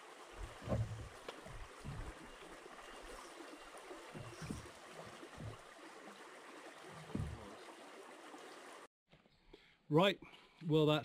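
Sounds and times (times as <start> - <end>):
river water running: 0.0 - 8.9
low thumps: 0.4 - 2.3, 4.2 - 5.6, 7.1 - 7.5.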